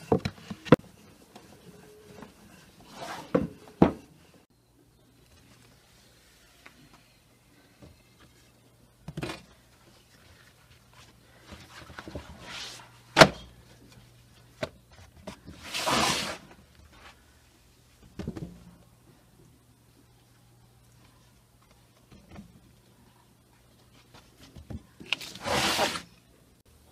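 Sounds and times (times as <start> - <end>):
faint low hum: 16.4 - 25.2.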